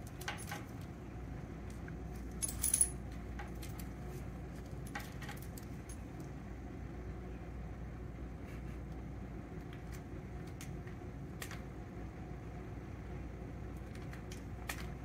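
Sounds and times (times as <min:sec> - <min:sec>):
steady low hum: 0:00.0 - 0:15.0
metallic jingle: 0:02.4 - 0:03.0.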